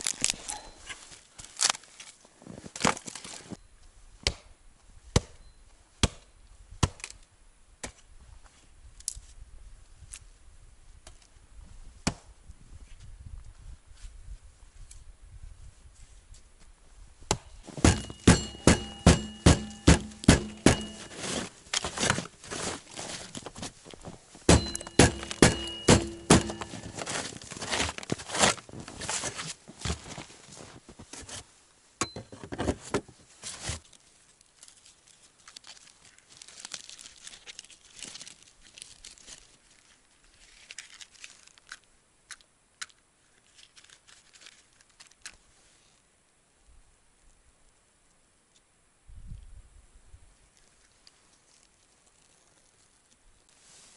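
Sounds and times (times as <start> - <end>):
axe chopping dry wood: 4.2 - 4.5, 5.1 - 5.4, 6.0 - 7.1, 17.3 - 21.2, 24.5 - 27.0
faint crackling and rustling: 21.1 - 24.5, 32.4 - 46.1, 50.3 - 53.9
wood knocks: 24.5 - 26.9.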